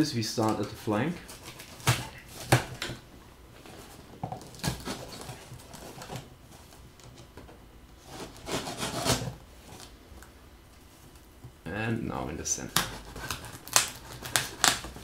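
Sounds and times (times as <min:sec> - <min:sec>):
cardboard rubbing and scraping: 0:08.0 - 0:09.9, 0:12.8 - 0:15.0.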